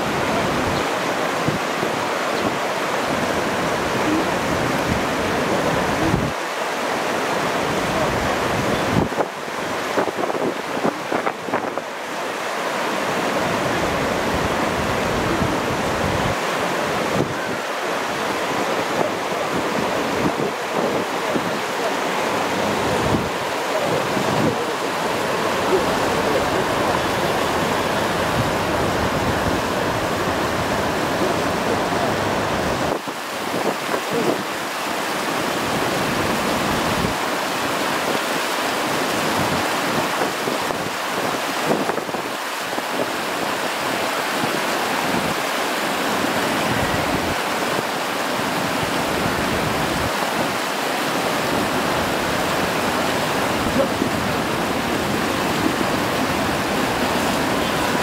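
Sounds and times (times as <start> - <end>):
river water rushing over weir: 0.0 - 58.0
wind buffeting microphone: 18.4 - 34.6.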